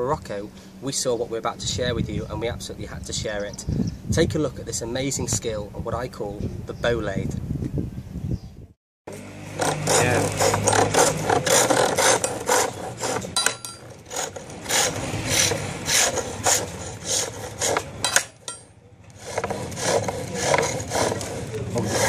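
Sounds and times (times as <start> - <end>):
chisel rasping on lathe wood: 9.2 - 22.0.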